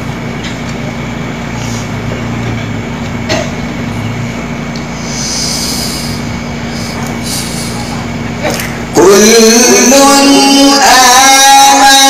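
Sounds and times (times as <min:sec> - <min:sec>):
sound system hum and drone: 0:00.0 - 0:12.0
breathy hiss: 0:05.0 - 0:08.1.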